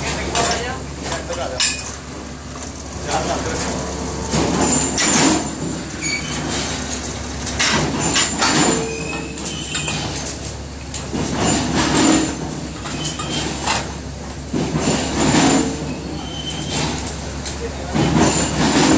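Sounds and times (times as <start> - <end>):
machine low hum: 2.8 - 7.5
metal scraping and clanking: 3.0 - 17.3, 17.9 - 18.9
brief metal squeals: 4.7 - 6.5, 8.2 - 10.2, 15.9 - 17.0.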